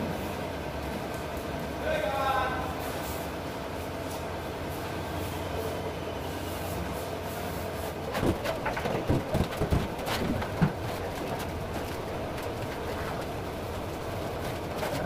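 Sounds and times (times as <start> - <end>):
steady low rumble: 8.1 - 15.0.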